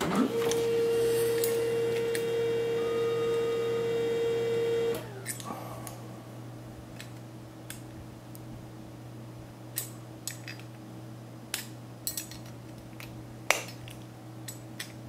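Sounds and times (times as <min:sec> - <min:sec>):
steady low hum: 0:00.0 - 0:15.0
pliers clinking on metal: 0:11.5 - 0:15.0.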